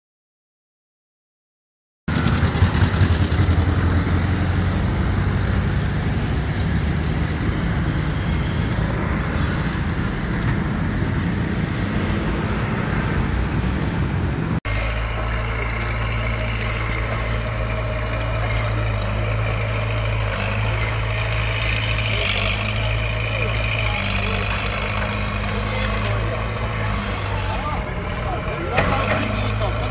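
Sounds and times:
road traffic rumble: 2.1 - 29.9
heavy engine idling: 14.7 - 29.9.

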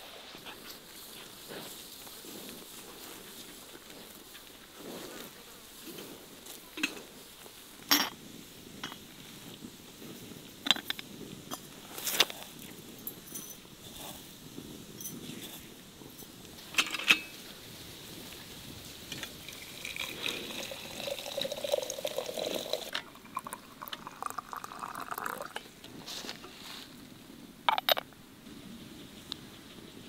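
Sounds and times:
water pouring into teapot: 19.4 - 25.7.

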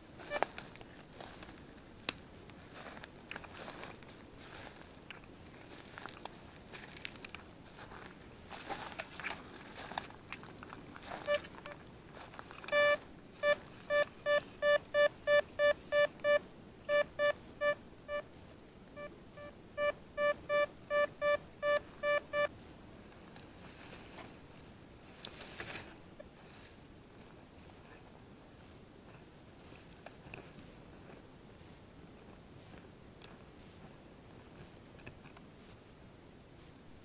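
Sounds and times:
metal detector short beeps: 12.7 - 18.2, 19.0 - 22.5.

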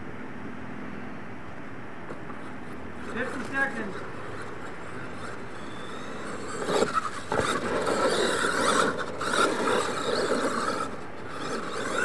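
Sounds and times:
tyres scraping in dirt: 2.1 - 12.0
toy truck motor whine: 2.4 - 12.0.

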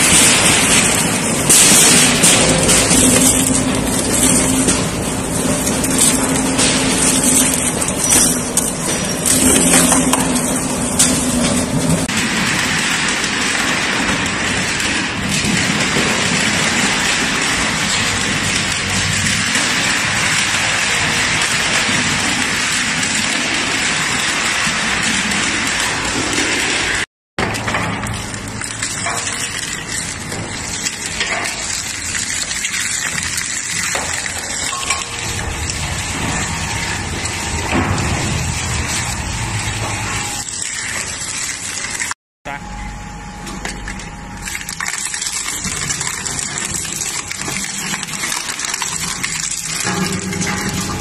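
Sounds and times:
material breaking crackle: 0.0 - 27.0
crushing machine humming: 0.0 - 51.0.

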